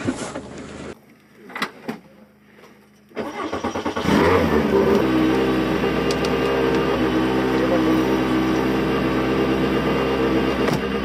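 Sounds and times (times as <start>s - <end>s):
car engine starting and idling: 3.0s - 11.0s
engine revving: 3.2s - 11.0s.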